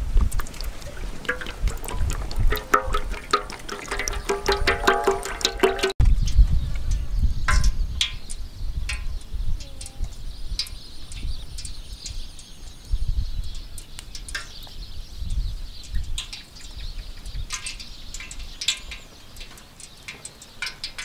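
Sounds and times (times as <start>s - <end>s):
wind on microphone: 0.0s - 19.4s
fish tapping in metal tray: 0.4s - 6.0s, 17.3s - 21.0s.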